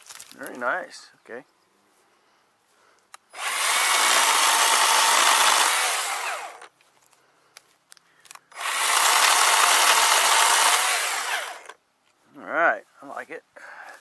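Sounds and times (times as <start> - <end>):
electric chainsaw cutting branch: 3.4 - 6.7, 8.5 - 11.8.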